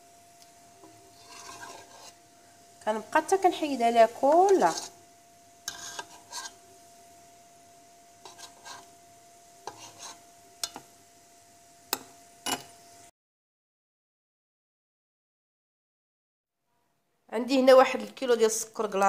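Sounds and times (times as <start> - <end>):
faint steady tone: 0.0 - 13.1
metal spoon scraping a pot: 0.8 - 2.2, 4.0 - 5.0, 5.6 - 6.7, 8.2 - 9.0, 9.6 - 10.9, 11.9 - 12.8.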